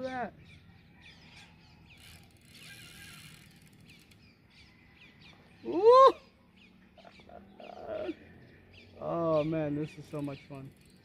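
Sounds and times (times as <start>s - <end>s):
fishing reel ratcheting and whirring: 1.8s - 4.4s, 10.1s - 11.0s.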